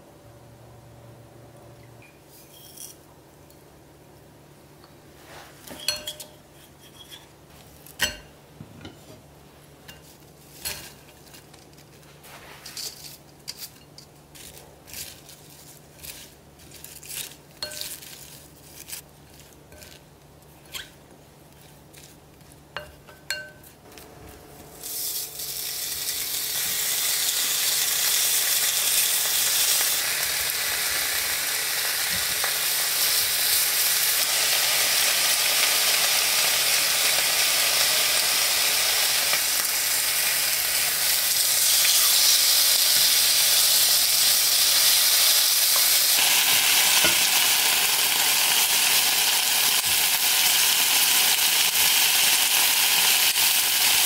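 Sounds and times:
spatula clinking on glass bowl: 0:05.8 - 0:07.2, 0:22.8 - 0:23.7
meat sizzling in a pan: 0:24.8 - 0:54.0.

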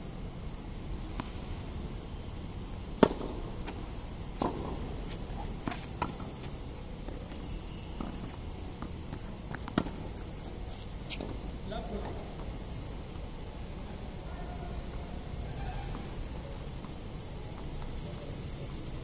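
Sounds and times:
tennis ball struck by racket: 0:02.9 - 0:06.3, 0:08.0 - 0:10.3
tennis ball bouncing on court: 0:02.9 - 0:10.4.

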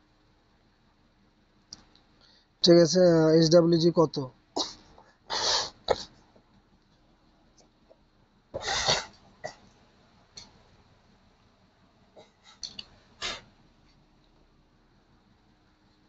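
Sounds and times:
faint clicks: 0:01.6 - 0:02.2.

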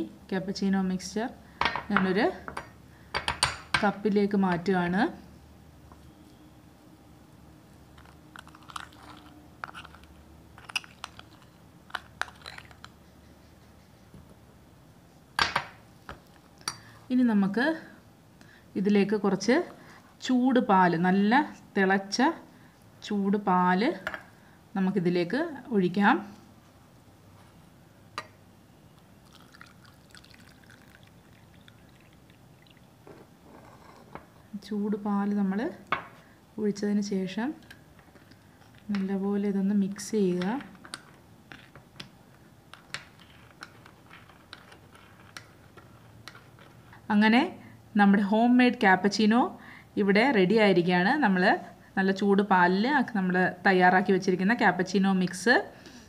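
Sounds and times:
milk trickling into cup: 0:29.2 - 0:33.0.

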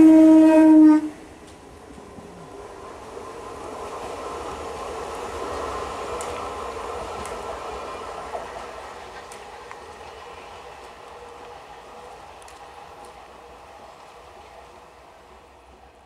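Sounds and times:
train rumbling on track: 0:00.0 - 0:16.0
faint clicks: 0:05.1 - 0:06.5, 0:12.4 - 0:13.2.

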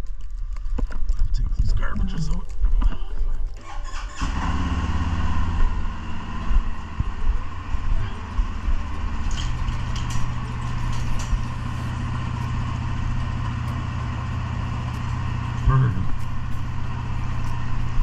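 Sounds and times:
engine idling: 0:03.0 - 0:18.0
garage door opener humming: 0:04.1 - 0:18.0.

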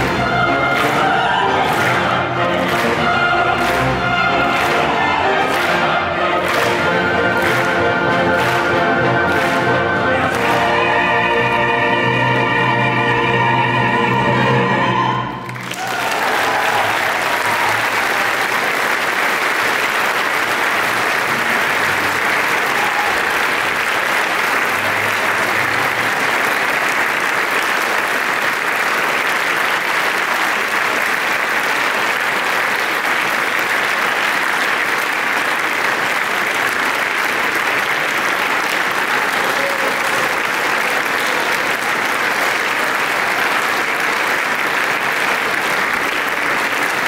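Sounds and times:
choir and orchestra chord: 0:00.0 - 0:15.6
loud applause: 0:00.0 - 0:47.0.

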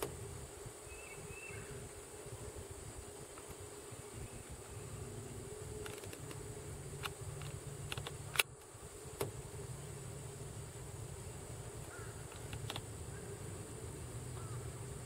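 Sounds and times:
low hum: 0:00.0 - 0:15.0
sharp clicks: 0:07.0 - 0:08.6, 0:12.3 - 0:12.9.

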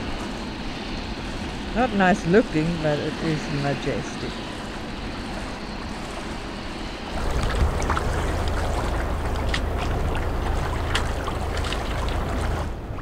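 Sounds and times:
water rushing along hulls: 0:00.0 - 0:13.0
deep low rumble: 0:07.1 - 0:13.0.

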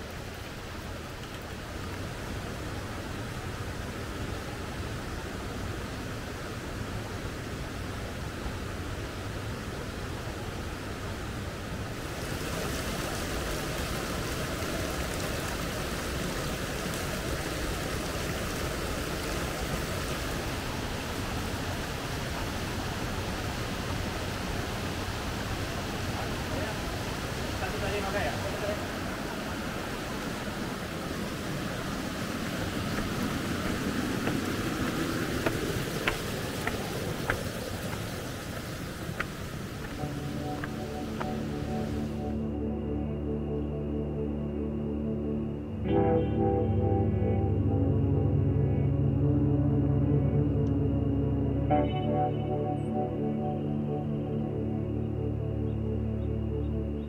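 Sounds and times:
stream water flowing: 0:00.0 - 0:42.5
background music: 0:40.0 - 0:57.0.

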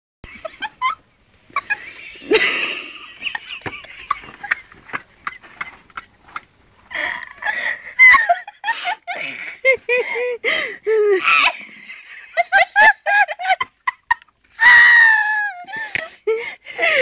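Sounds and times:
woman laughing breathily: 0:01.6 - 0:05.8, 0:06.9 - 0:11.3, 0:14.6 - 0:17.0.

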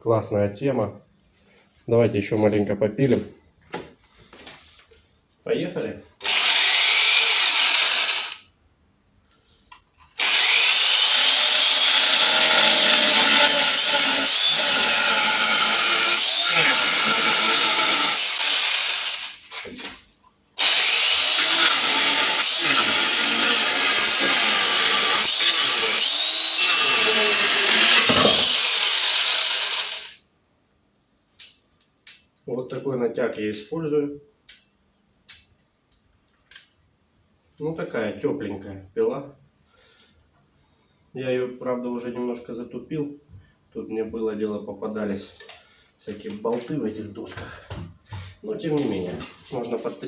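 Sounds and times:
chain cutter cutting chipboard: 0:11.2 - 0:19.2, 0:20.7 - 0:30.1.

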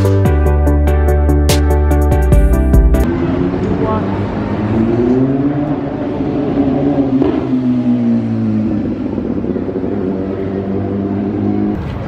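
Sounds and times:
pitched engine drone: 0:00.0 - 0:12.0
cars driving past: 0:03.0 - 0:12.0.

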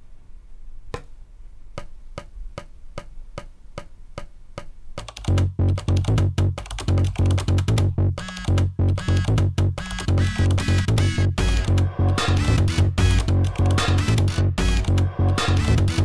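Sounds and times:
electronic music with bass beat: 0:05.1 - 0:16.0.

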